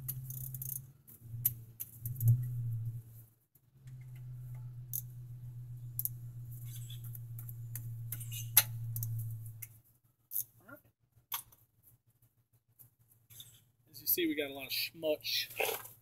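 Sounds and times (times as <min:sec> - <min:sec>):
ratchet clicking: 0:00.0 - 0:02.6, 0:04.0 - 0:05.2
steady low hum: 0:00.0 - 0:09.8.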